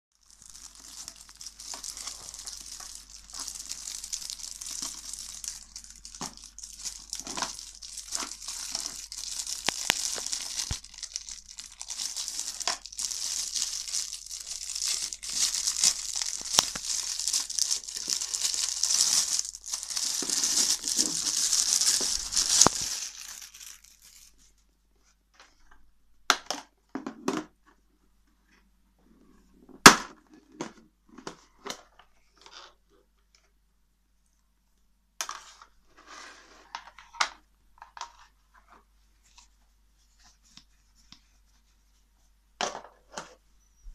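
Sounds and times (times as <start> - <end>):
plastic wrap crinkling and tearing: 0.2 - 24.5.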